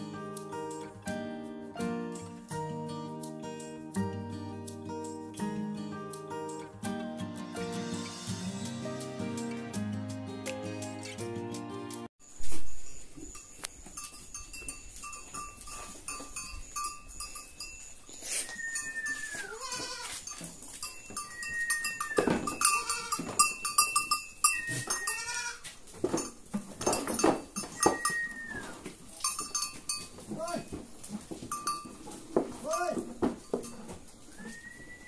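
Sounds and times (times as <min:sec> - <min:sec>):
goats bleating: 0:19.4 - 0:20.2, 0:24.9 - 0:25.7.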